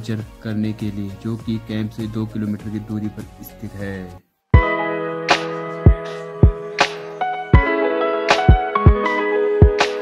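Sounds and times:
background music with deep beats: 0:04.6 - 0:10.0.

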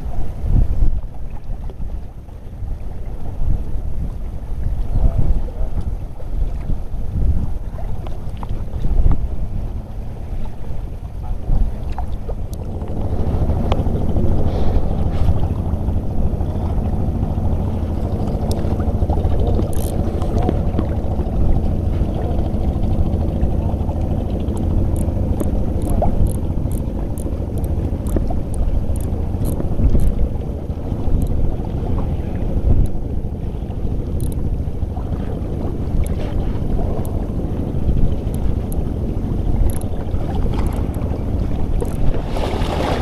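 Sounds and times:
choppy sea water: 0:00.0 - 0:43.0
wind buffeting microphone: 0:00.0 - 0:43.0
light regular ticks: 0:18.0 - 0:18.8, 0:19.5 - 0:20.6, 0:24.4 - 0:30.2, 0:31.1 - 0:31.4, 0:34.1 - 0:34.4, 0:37.0 - 0:37.2, 0:38.1 - 0:38.9, 0:39.6 - 0:40.0, 0:41.8 - 0:42.1.

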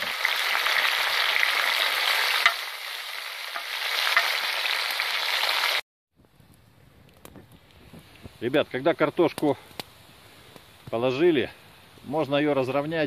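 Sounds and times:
potatoes sizzling in fat: 0:00.0 - 0:05.8.

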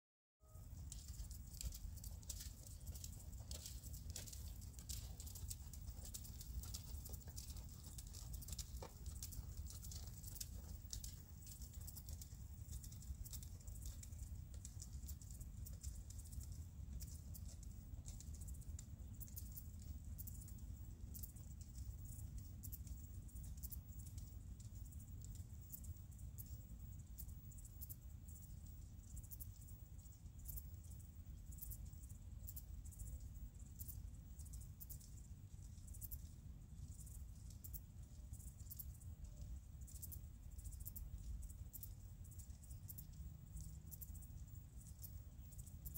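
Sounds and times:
light ticks and crackles: 0:00.4 - 0:45.9.

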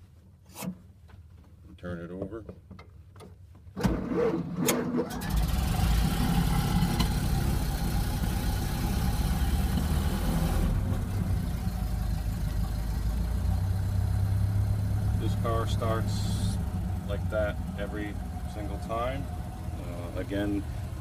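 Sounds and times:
starter motor cranking: 0:05.0 - 0:07.2
car engine running: 0:05.2 - 0:21.0.

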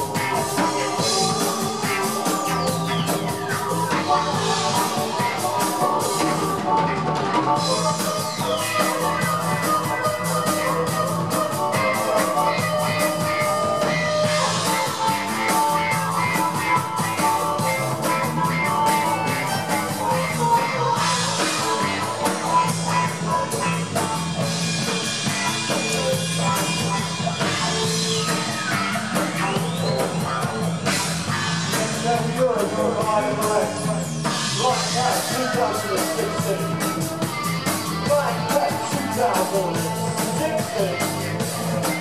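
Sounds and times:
harmonica: 0:00.0 - 0:42.0
live rock band playing: 0:00.0 - 0:42.0.

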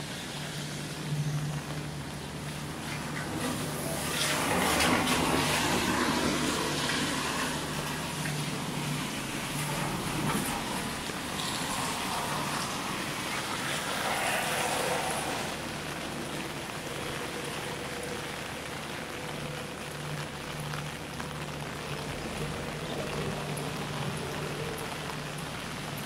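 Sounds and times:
steady rain: 0:00.0 - 0:26.0
tyres hissing on wet road: 0:00.0 - 0:26.0.

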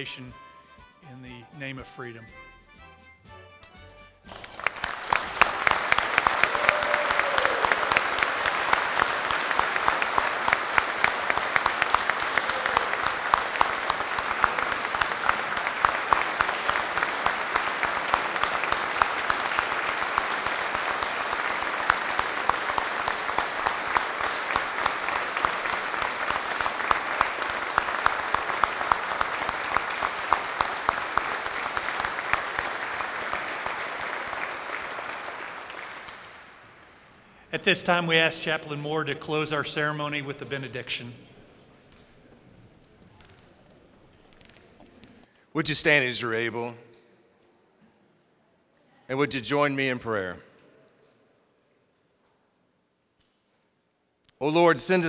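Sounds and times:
crowd applause: 0:04.3 - 0:37.4.

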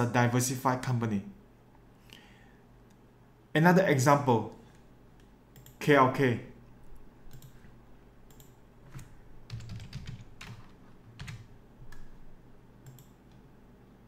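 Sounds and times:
faint keyboard and mouse clicks: 0:04.5 - 0:05.8, 0:06.8 - 0:12.2, 0:12.8 - 0:13.5.

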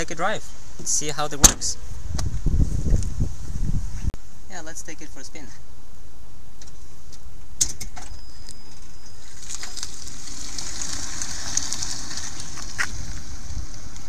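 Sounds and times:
tyre noise on paving stones: 0:07.7 - 0:14.0.

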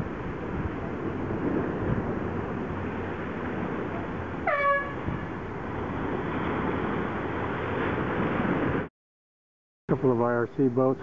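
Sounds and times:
wind noise on microphone: 0:00.0 - 0:08.9
race finish horn blast: 0:04.4 - 0:05.1.

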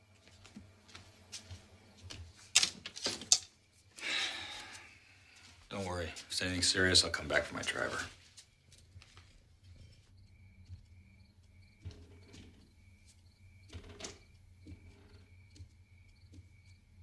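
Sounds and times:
soft footsteps on staircase: 0:00.0 - 0:02.5, 0:08.1 - 0:13.7, 0:14.3 - 0:17.0
crickets chirping faintly: 0:00.0 - 0:17.0.

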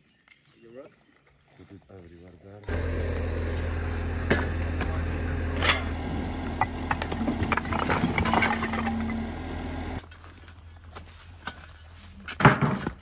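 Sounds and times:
diesel engine running: 0:02.7 - 0:10.0
falling rock clatter: 0:06.7 - 0:09.4.

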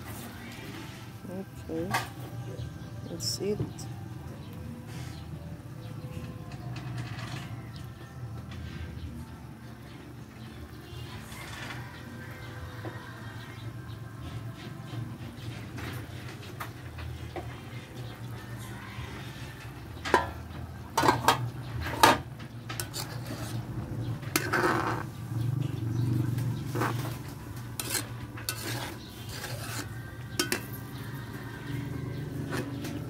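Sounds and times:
metal ladle clanking against pan: 0:20.1 - 0:23.6, 0:24.3 - 0:25.1, 0:26.8 - 0:30.9.

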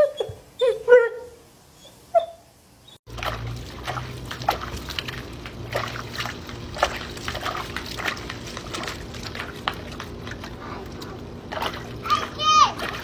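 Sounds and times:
water splashing: 0:03.1 - 0:13.0.

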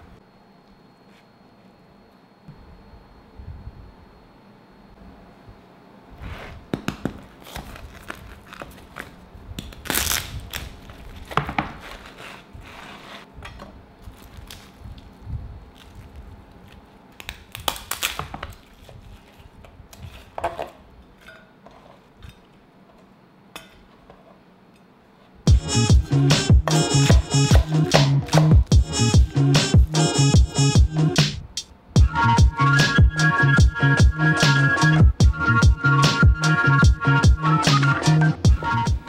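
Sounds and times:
crispy pork skin crunching: 0:14.0 - 0:15.1, 0:15.7 - 0:19.4.

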